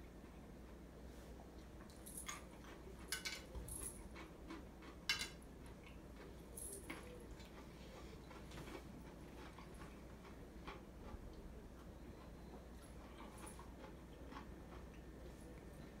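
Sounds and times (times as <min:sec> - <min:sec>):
crunching of eating garlic: 0:01.6 - 0:16.0.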